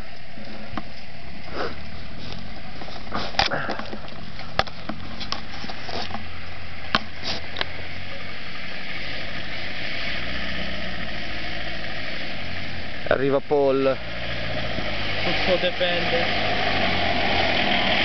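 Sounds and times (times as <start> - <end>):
engine running at low revs: 6.2 - 18.0.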